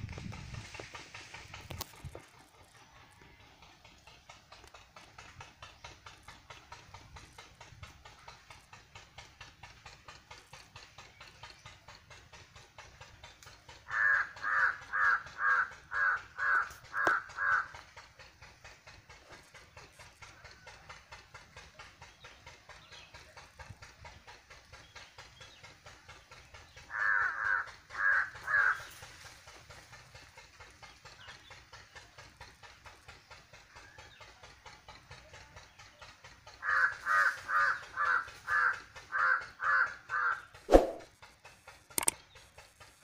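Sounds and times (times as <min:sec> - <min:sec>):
harsh rasping animal calls: 0:13.7 - 0:18.2, 0:26.7 - 0:31.7, 0:36.2 - 0:41.1
swoosh: 0:40.7 - 0:41.1
sharp click: 0:41.9 - 0:42.2.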